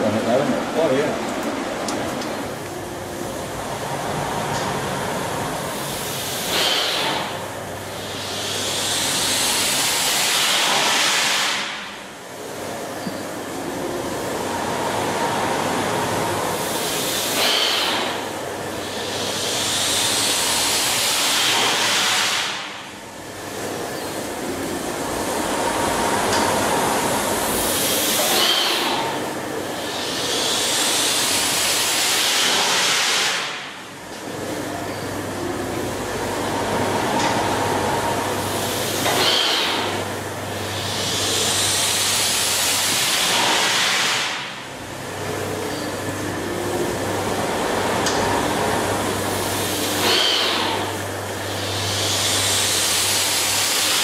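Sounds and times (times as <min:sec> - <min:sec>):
machinery hum: 0:00.0 - 0:54.0
pumping engine rushing hiss: 0:02.4 - 0:54.0.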